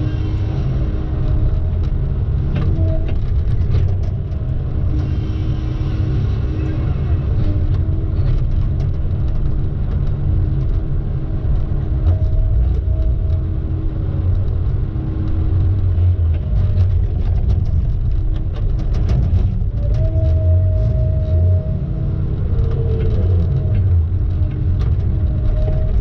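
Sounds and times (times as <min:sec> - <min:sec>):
vehicle engine rumbling: 0:00.0 - 0:26.0
clicks and rattles: 0:14.1 - 0:20.3.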